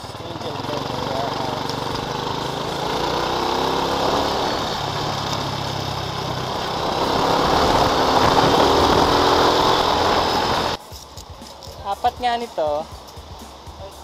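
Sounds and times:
scooter engine running: 0.0s - 10.8s
wind and road noise: 0.0s - 14.0s.

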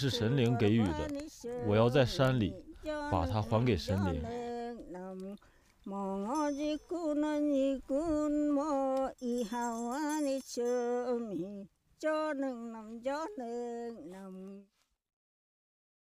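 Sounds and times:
person singing slow melody: 0.0s - 14.7s
faint bells tinkling: 6.0s - 8.0s, 8.6s - 11.6s.

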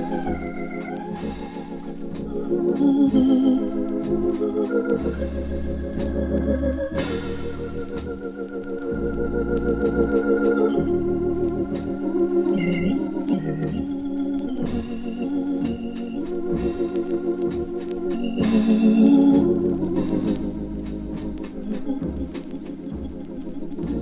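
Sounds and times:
cymbal and drum strokes: 0.0s - 24.0s
hammond organ chords: 0.0s - 24.0s
low bass notes: 0.0s - 24.0s.

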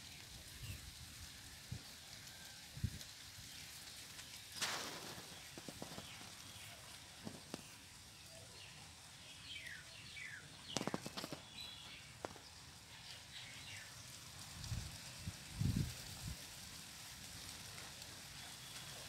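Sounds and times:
small birds chirping: 3.4s - 14.9s
soft clicks and rustles: 3.8s - 8.0s, 10.6s - 13.1s.

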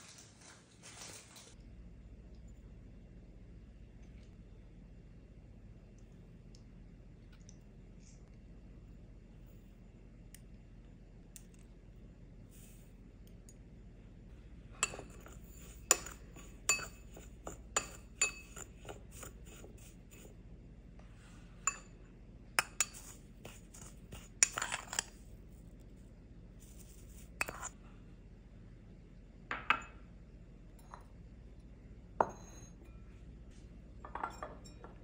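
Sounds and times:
spoon scraping bowl: 14.7s - 20.4s, 22.6s - 25.3s, 26.6s - 27.8s
metal spoon clinking on ceramic bowl: 14.8s - 20.3s, 21.7s - 22.0s, 22.6s - 25.2s, 27.4s - 27.7s, 32.2s - 33.1s, 34.0s - 35.0s.

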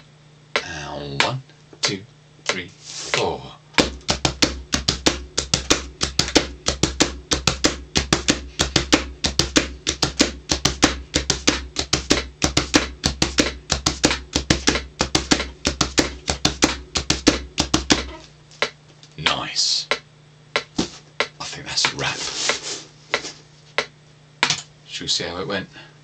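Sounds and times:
hands drumming on cardboard box: 3.8s - 18.8s, 19.9s - 24.0s.

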